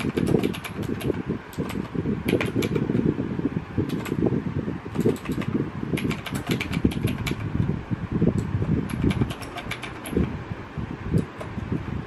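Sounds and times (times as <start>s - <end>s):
mechanical keyboard typing: 0.0s - 3.1s, 3.9s - 4.2s, 4.9s - 7.6s, 8.4s - 10.4s.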